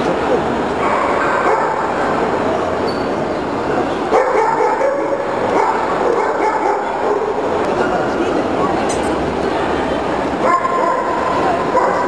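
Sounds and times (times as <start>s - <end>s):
crowd chatter: 0.0s - 12.0s
dogs barking and yipping: 0.8s - 2.0s, 4.1s - 7.4s, 10.4s - 12.0s.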